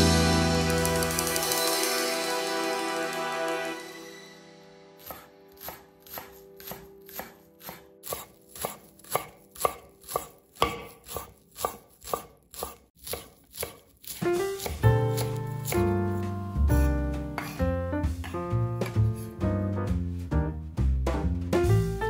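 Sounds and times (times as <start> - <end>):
knife chopping on cutting board: 5.0 - 19.3.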